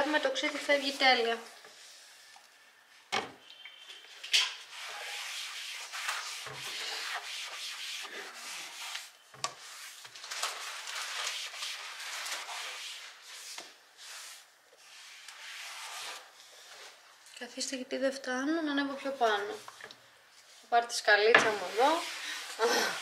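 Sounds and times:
sponge scrubbing a shelf: 4.6 - 10.0, 10.6 - 17.0, 21.5 - 23.0.

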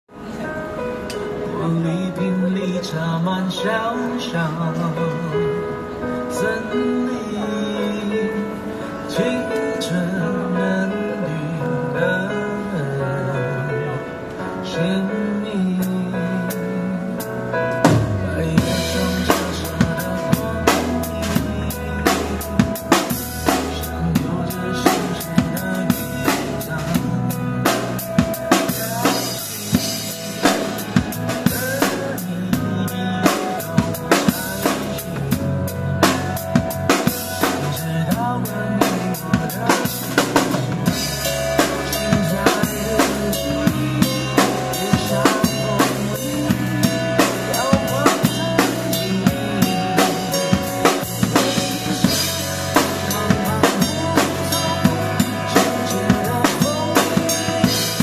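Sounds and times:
drum kit groove: 16.5 - 58.0.

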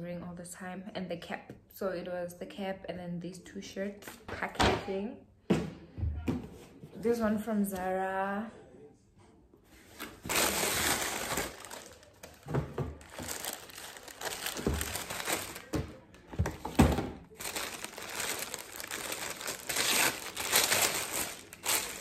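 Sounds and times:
packaging crinkling: 10.0 - 22.0.

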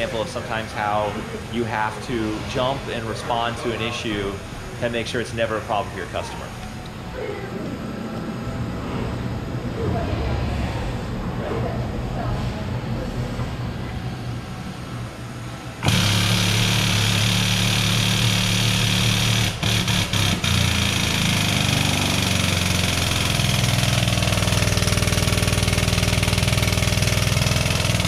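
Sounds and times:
hydraulic press pump running: 13.8 - 28.0.

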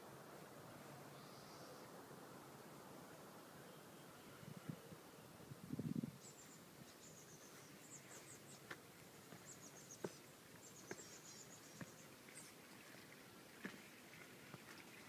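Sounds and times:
footsteps on garden path: 6.9 - 15.0.

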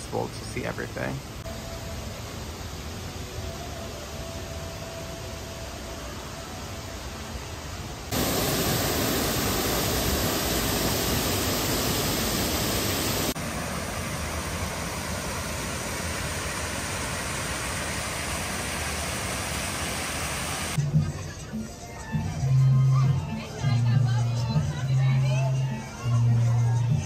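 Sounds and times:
stream and waterfall rushing: 0.0 - 20.8.

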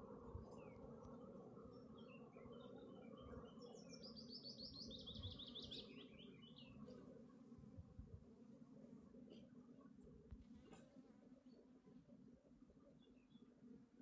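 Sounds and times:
honeybees humming: 0.0 - 14.0
bird chirps: 3.5 - 6.8.

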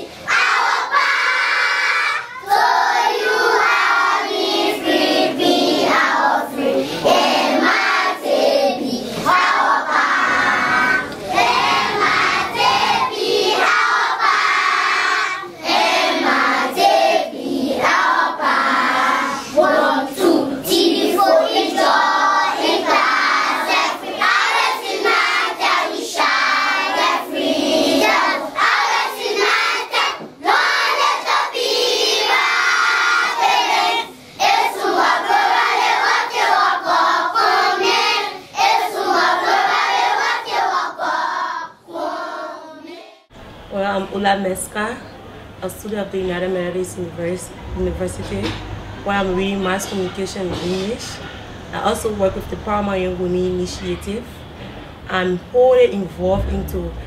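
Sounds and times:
children singing: 0.0 - 43.3.

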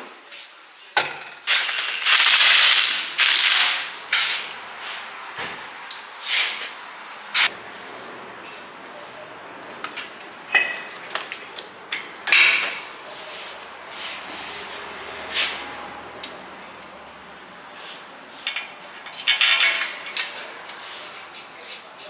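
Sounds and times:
metal tools clinking and knocking: 4.1 - 4.6, 18.4 - 20.6.

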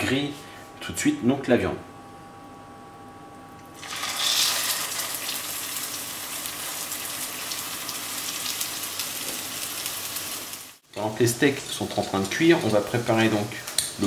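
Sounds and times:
patty sizzling in hot oil: 3.8 - 10.8.

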